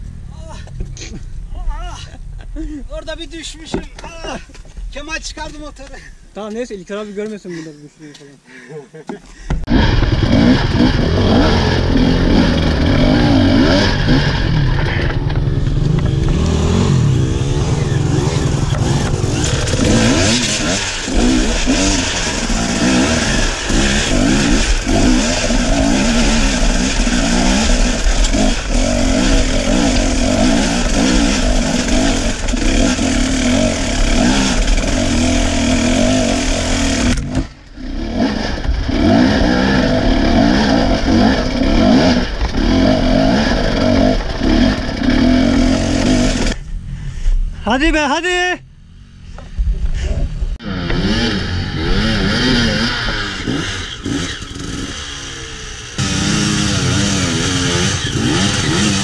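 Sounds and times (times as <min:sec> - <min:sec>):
dirt bike engine revving: 0:09.7 - 0:46.6, 0:50.2 - 0:59.0.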